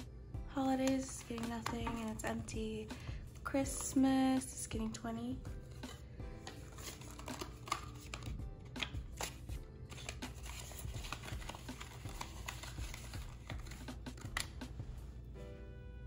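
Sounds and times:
quiet background music: 0.0 - 16.0
paper and plastic rustling: 0.8 - 2.2, 5.6 - 14.5.

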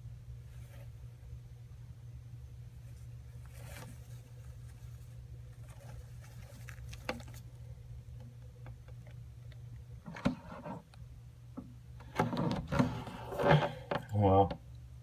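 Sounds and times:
steady low hum: 0.0 - 15.0
scratches and rustles on substrate: 2.8 - 7.5
animal scuffling: 2.9 - 7.6.

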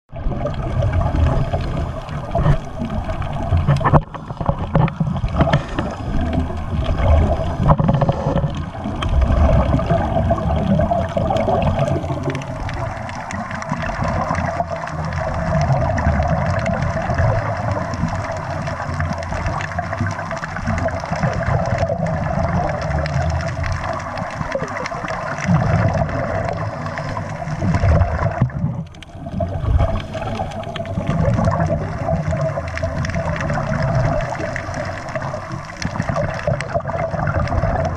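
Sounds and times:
air bubbles gurgling: 0.1 - 37.9
diver breathing through regulator: 26.3 - 27.8.

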